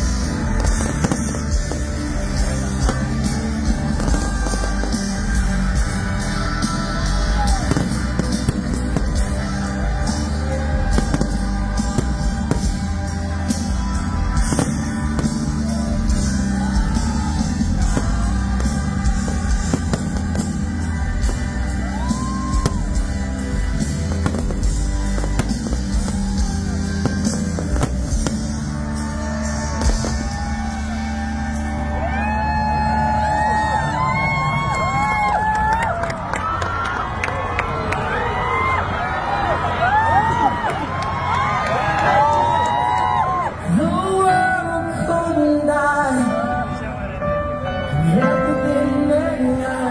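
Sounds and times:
person singing: 0.0s - 30.4s, 43.7s - 49.9s
live rock band playing: 0.0s - 35.5s.

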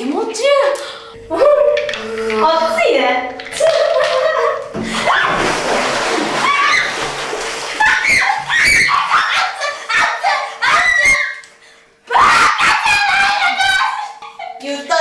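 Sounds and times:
water splashing: 2.5s - 10.2s
women shrieking and squealing: 6.4s - 7.0s, 7.8s - 11.4s, 12.1s - 14.2s.

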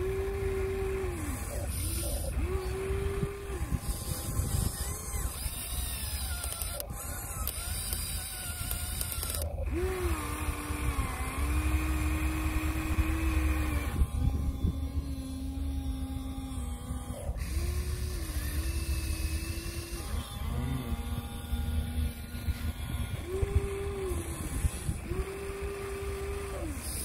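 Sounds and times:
low steady rumble: 0.0s - 27.0s
small electric motors whining: 0.0s - 27.0s.

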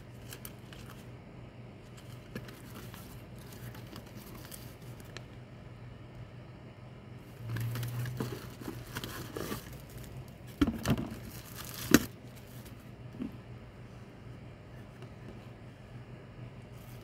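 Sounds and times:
faint steady hum: 0.0s - 17.0s
plastic bag and paper crinkling: 0.1s - 1.1s, 1.8s - 5.3s, 7.4s - 12.9s.

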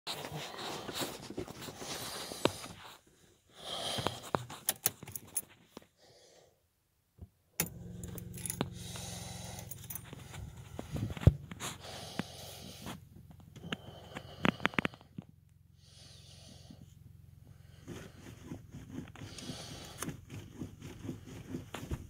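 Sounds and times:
keys jangling: 4.6s - 5.5s, 7.6s - 8.8s, 9.5s - 10.7s
engine cold start rumble: 7.6s - 14.9s.

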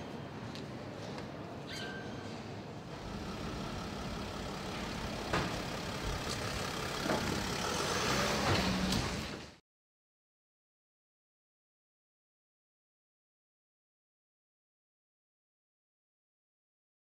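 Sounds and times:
van engine humming: 2.9s - 9.6s.

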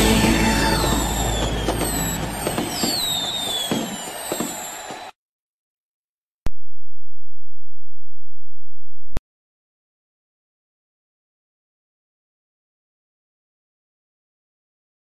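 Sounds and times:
fireworks whistles and pops: 0.0s - 5.2s.

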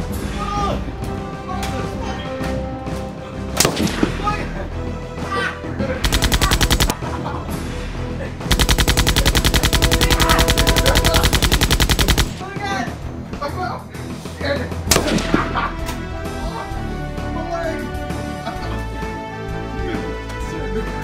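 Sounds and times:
background music: 0.0s - 21.0s
automatic gunfire: 6.0s - 7.0s, 8.5s - 12.4s, 14.9s - 15.6s.

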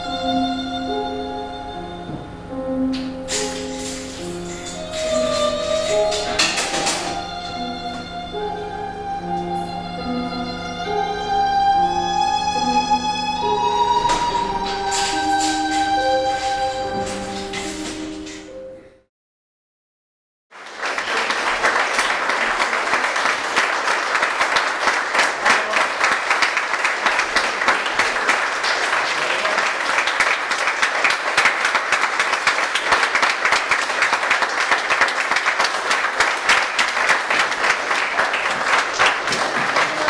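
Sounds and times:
audience applauding: 20.6s - 40.0s.

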